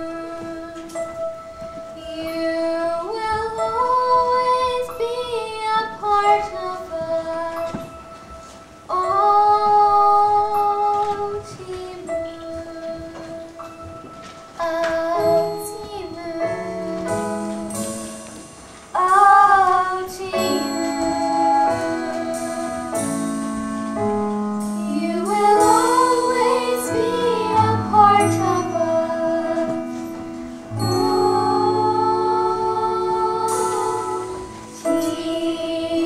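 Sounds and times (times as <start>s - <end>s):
instrumental chord accompaniment: 0.0s - 36.0s
children singing: 19.0s - 23.4s, 24.6s - 36.0s.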